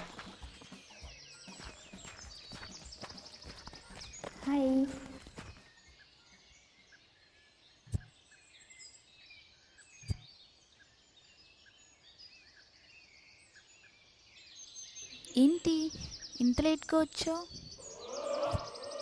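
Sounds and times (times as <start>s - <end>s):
birds chirping faintly: 0.0s - 19.0s.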